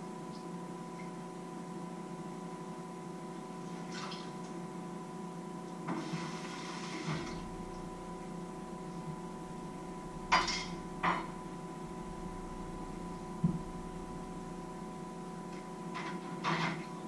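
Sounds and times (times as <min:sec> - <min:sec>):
steady hum: 0:00.0 - 0:17.0
dishes clattering in sink: 0:10.3 - 0:11.4, 0:16.0 - 0:16.9
dishes clinking: 0:10.3 - 0:11.4.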